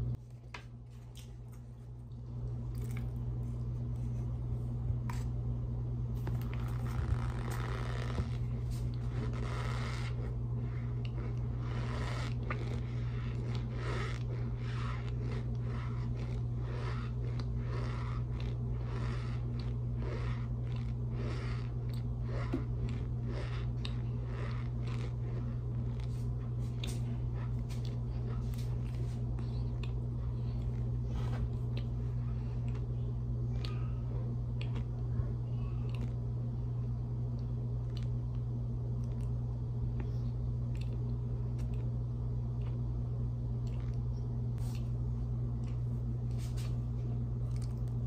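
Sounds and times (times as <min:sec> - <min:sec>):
steady low hum: 0:00.0 - 0:48.0
chewing sounds: 0:06.3 - 0:33.9, 0:34.5 - 0:35.0, 0:35.8 - 0:36.2, 0:37.4 - 0:38.4, 0:40.0 - 0:42.0, 0:43.6 - 0:44.0, 0:47.4 - 0:48.0.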